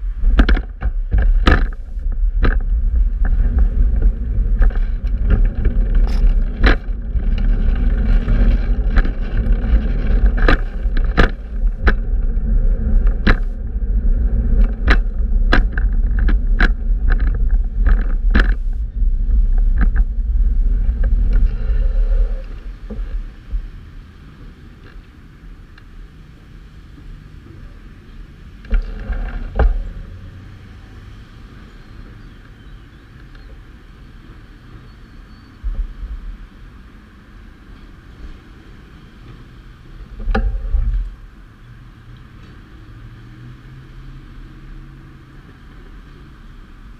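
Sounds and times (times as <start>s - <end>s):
city background noise: 0.0s - 46.9s
wind and road rumble: 0.0s - 46.9s
bicycle clicks and knocks: 0.2s - 13.9s, 14.6s - 20.1s.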